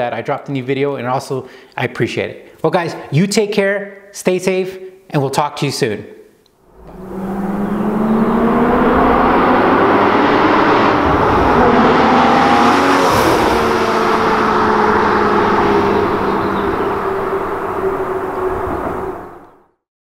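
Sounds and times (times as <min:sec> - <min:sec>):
car engine passing by: 0:06.6 - 0:19.6.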